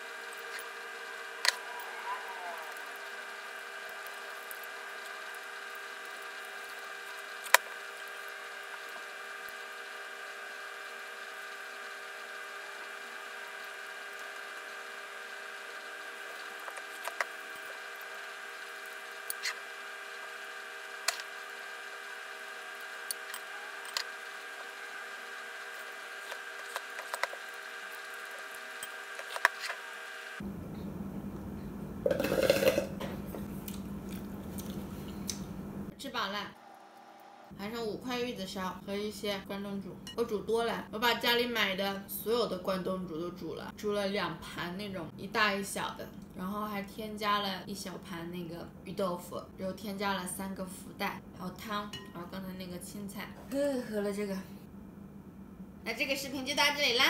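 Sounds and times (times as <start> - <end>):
steady electrical hum: 0.0 - 57.0
wet chewing: 33.6 - 35.4.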